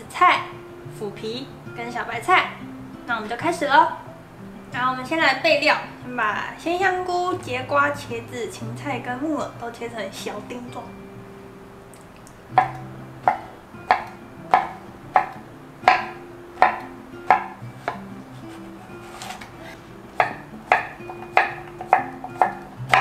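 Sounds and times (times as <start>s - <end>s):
soft background music: 0.0s - 23.0s
knife chopping on wooden board: 12.6s - 19.5s, 20.2s - 23.0s.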